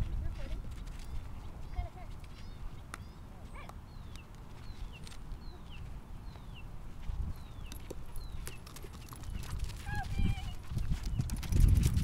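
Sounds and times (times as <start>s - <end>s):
wind noise on microphone: 0.0s - 2.8s, 6.8s - 12.0s.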